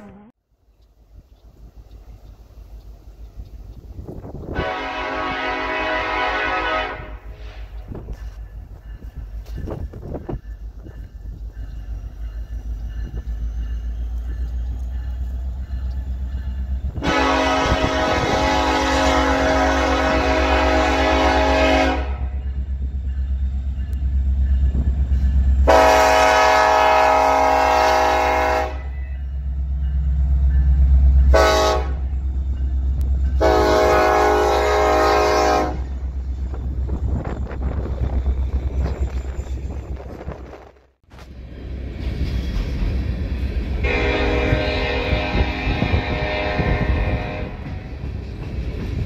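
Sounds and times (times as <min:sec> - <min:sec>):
locomotive horn: 0:04.4 - 0:07.7, 0:16.9 - 0:22.4, 0:25.6 - 0:29.2, 0:31.3 - 0:32.1, 0:33.4 - 0:36.0, 0:43.8 - 0:47.9.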